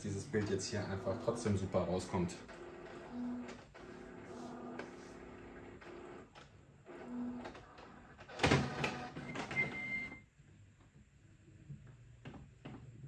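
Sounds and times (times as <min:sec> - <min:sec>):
printer motors whirring: 0:00.2 - 0:09.9
printer clatter: 0:07.4 - 0:09.8.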